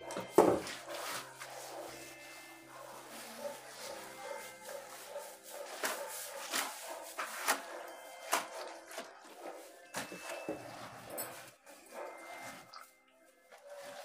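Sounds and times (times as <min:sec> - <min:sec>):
hands smearing wet plaster: 0:02.8 - 0:09.6.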